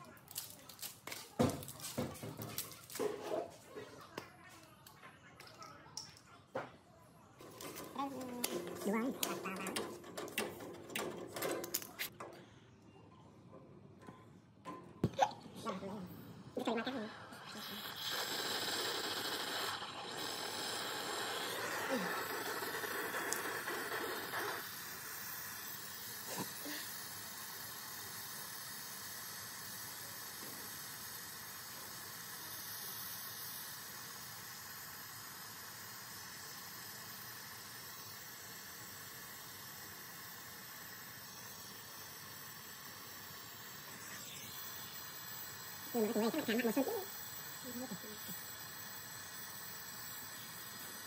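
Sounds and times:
steady hissing noise: 15.7 - 51.0.

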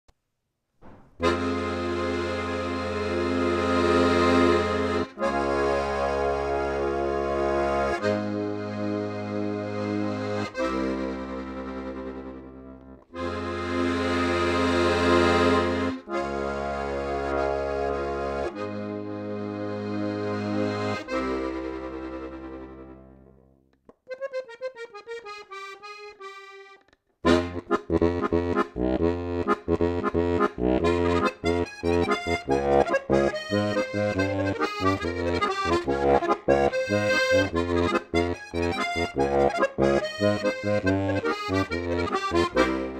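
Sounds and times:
high single accordion notes: 1.2 - 23.4, 24.0 - 42.9
lively accordion tune: 1.2 - 23.4, 24.0 - 42.9
accordion chords: 1.2 - 42.9.

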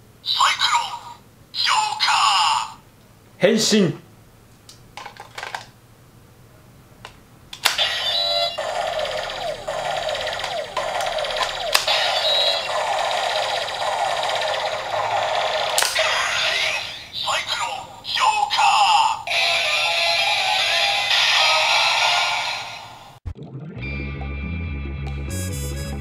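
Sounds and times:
toy electronic chirps and beeps: 7.8 - 15.8.

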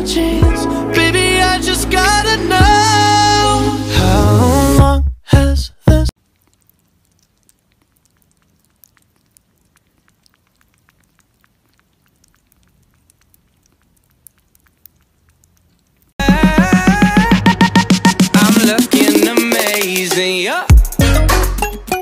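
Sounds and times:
kitten lapping wet clicks: 6.2 - 16.2.

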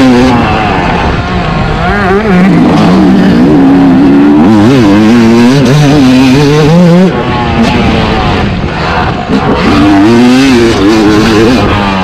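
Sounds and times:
motocross engine revving: 0.0 - 12.0.

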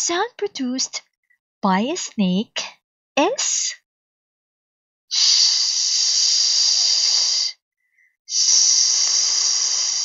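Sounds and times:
person hissing like a snake: 5.1 - 7.6, 8.3 - 10.0.

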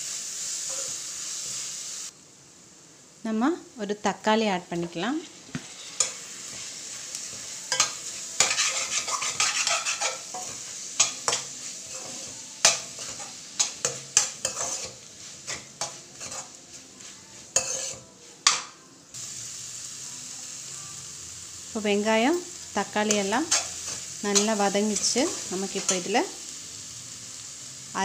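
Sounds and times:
vegetables sizzling in oil: 0.0 - 28.0
metal spoon scraping pan: 5.2 - 16.6, 17.4 - 18.6, 23.1 - 26.2.

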